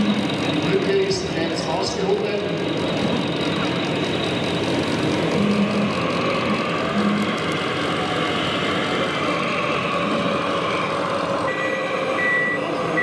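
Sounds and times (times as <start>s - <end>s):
hall background noise: 0.0s - 13.0s
model machine engines running: 0.0s - 13.0s
reversing beeper: 5.3s - 7.4s, 8.2s - 13.0s.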